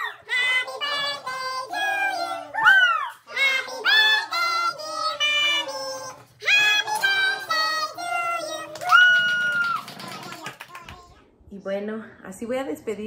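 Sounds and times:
group singing unaccompanied: 0.0s - 8.9s.

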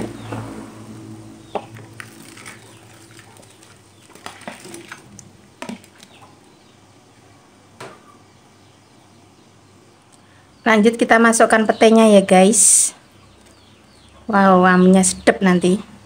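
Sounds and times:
food tumbling into simmering sauce: 0.0s - 6.5s.

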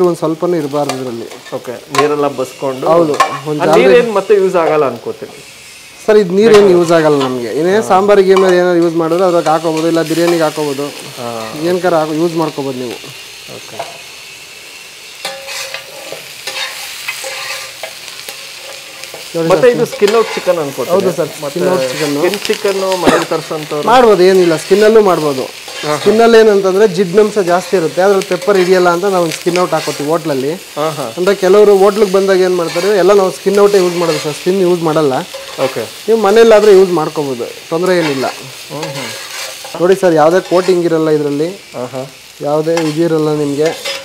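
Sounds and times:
light frying sizzle: 0.0s - 44.0s
metal spatula scraping wok: 15.0s - 22.7s, 23.5s - 26.6s, 32.0s - 37.1s, 37.8s - 41.0s, 42.7s - 44.0s
metal spatula scraping pan: 15.2s - 20.6s, 25.5s - 26.2s, 32.6s - 33.0s, 37.9s - 39.8s, 43.6s - 44.0s.

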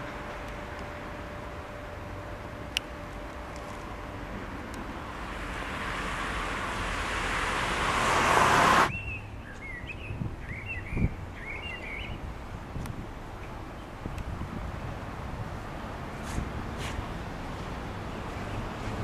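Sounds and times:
low steady rumble: 0.0s - 9.5s
road traffic noise: 0.0s - 19.0s.

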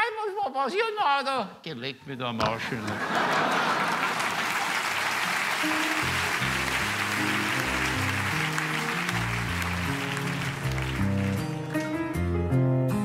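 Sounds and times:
audience applauding: 2.6s - 12.0s
instrumental music: 5.2s - 13.0s.

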